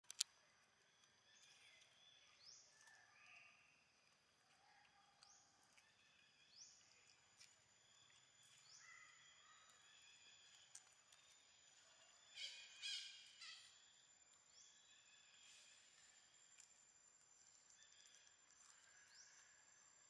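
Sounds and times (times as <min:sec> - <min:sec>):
distant birds chirping: 0:06.2 - 0:19.5.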